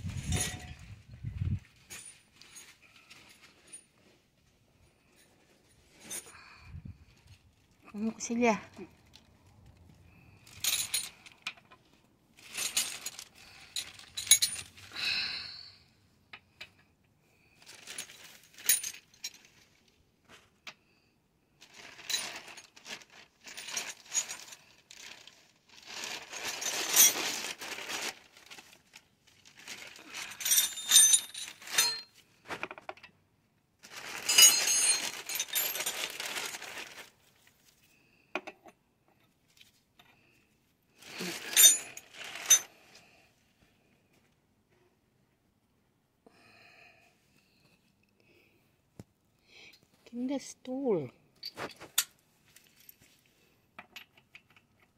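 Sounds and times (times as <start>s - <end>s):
metal tools clinking: 0.1s - 1.0s, 10.4s - 11.8s, 12.4s - 14.8s, 30.1s - 33.1s, 34.0s - 36.6s, 41.2s - 42.8s, 51.4s - 53.2s.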